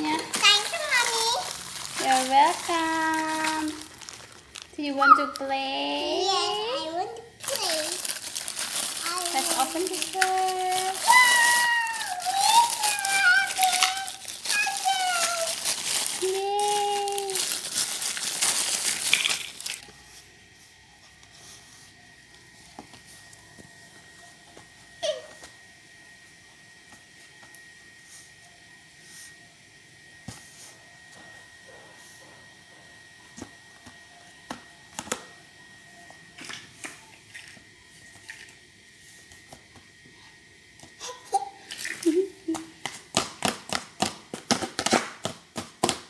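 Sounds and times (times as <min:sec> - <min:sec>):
plastic wrapper crinkling and tearing: 0:00.0 - 0:05.5, 0:07.4 - 0:19.9
faint steady hum: 0:00.0 - 0:46.0.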